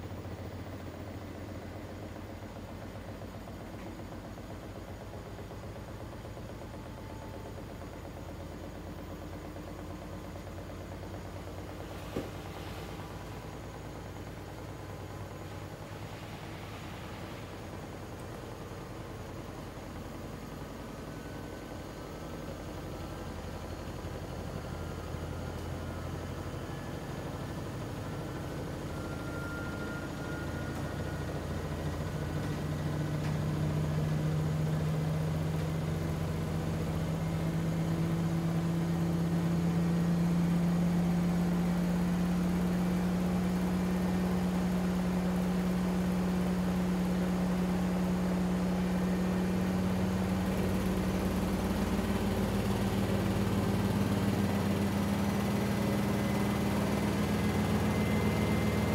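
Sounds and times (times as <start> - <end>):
washing machine spinning up: 0.0 - 58.9.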